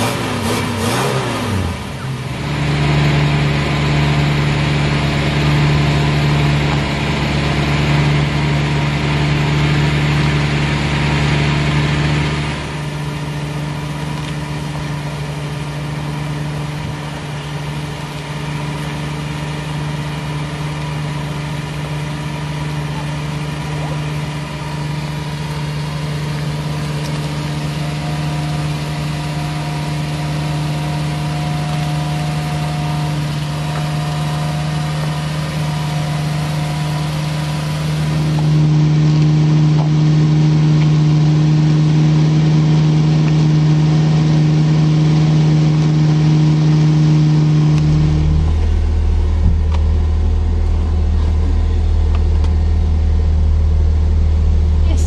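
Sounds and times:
car engine running: 0.0 - 55.0.

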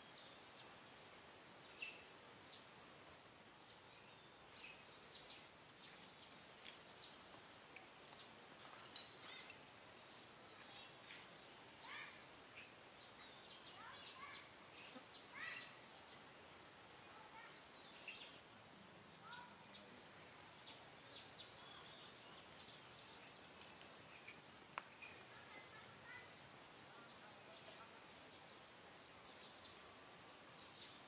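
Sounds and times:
short chirping calls: 1.6 - 2.1.

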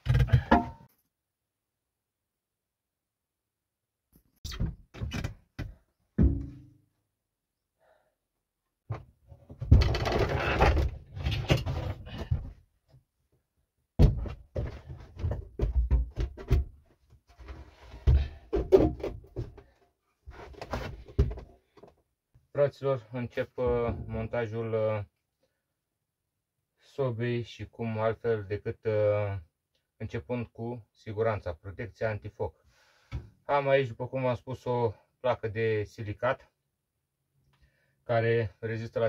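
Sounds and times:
objects knocking on wooden floor: 5.6 - 6.7.

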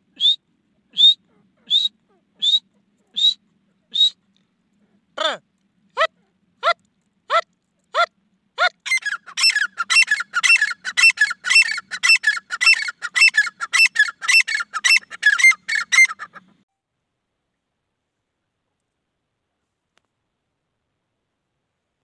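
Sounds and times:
francolin calling: 0.2 - 4.2, 8.0 - 16.4.

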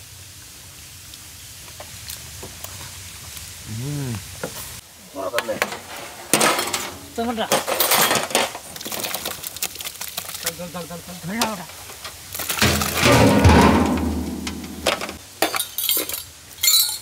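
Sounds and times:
metal pans scraping and clinking: 5.4 - 9.3, 11.4 - 17.0
wet rustling of orange peels: 8.5 - 12.6.

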